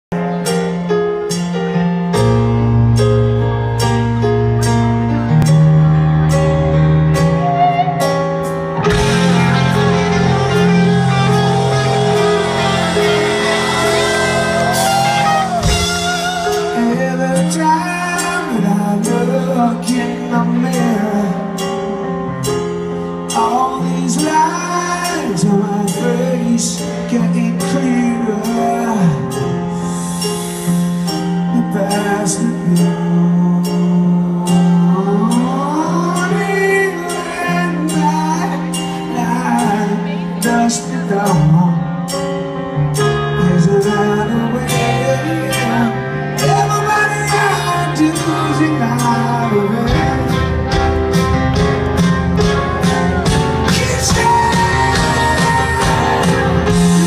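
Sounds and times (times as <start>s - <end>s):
crowd noise: 0.0s - 57.0s
piano playing slow chords: 0.1s - 57.0s
man singing: 8.9s - 22.4s, 23.3s - 29.6s, 31.2s - 42.3s, 43.0s - 51.1s, 52.8s - 57.0s.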